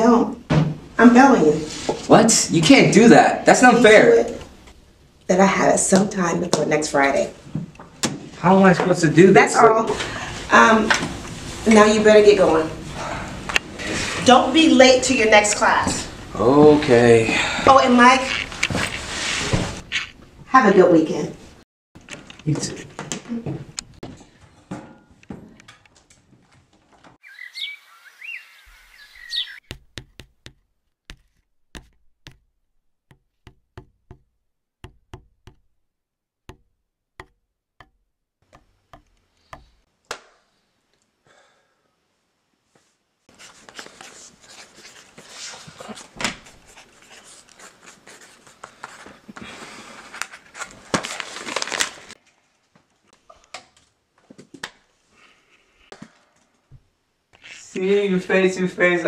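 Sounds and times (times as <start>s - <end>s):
scratching on paper: 29.6s - 35.7s, 43.3s - 49.2s
pen tapping on paper: 29.6s - 35.8s, 36.5s - 39.8s.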